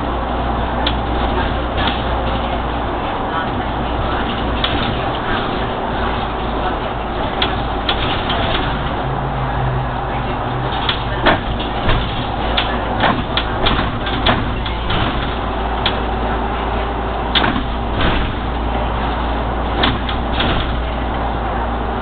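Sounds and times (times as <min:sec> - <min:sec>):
bus engine droning: 0:00.0 - 0:22.0
cabin fittings rattling: 0:00.8 - 0:09.0, 0:10.5 - 0:16.3, 0:17.3 - 0:21.1.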